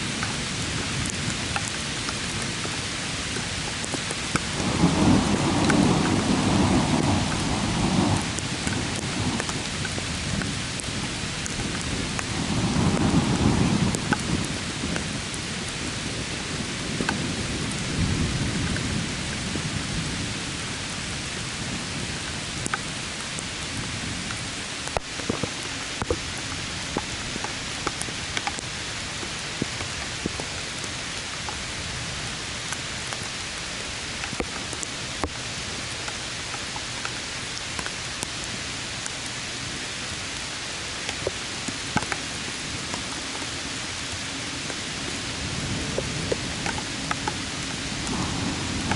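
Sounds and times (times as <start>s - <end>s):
steady rain: 0.0s - 48.9s
thunder rumbling: 4.5s - 22.2s, 44.6s - 48.9s.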